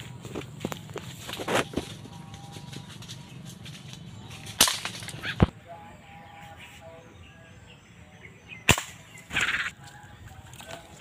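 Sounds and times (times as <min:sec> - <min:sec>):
sharp cracks: 0:04.4 - 0:05.5, 0:08.7 - 0:09.7.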